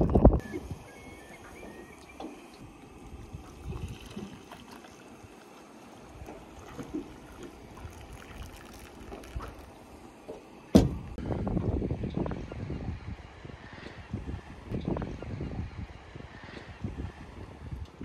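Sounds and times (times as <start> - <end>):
water washing around a boat: 0.7 - 11.2
coffee pouring into a mug: 3.4 - 10.0
sharp knock: 10.8 - 11.0.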